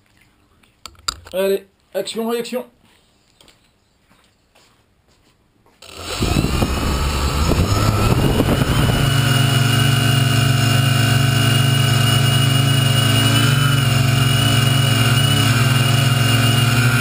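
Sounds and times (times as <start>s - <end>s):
drone motors humming and whining: 5.8s - 17.0s.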